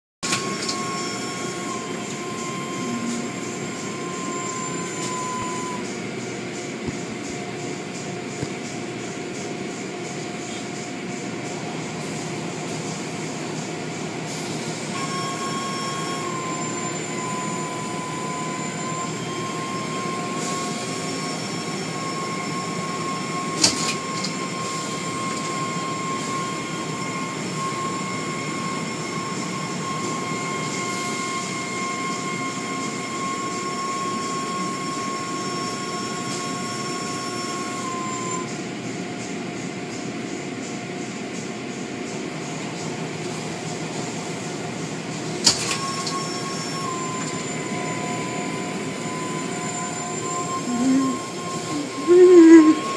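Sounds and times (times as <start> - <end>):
car wash machinery rushing: 0.2 - 37.9
machine whine: 0.2 - 52.9.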